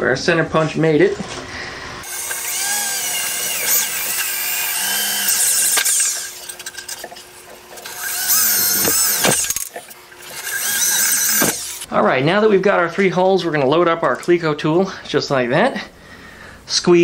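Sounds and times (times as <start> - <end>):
electric drill whining through steel: 2.0 - 11.9.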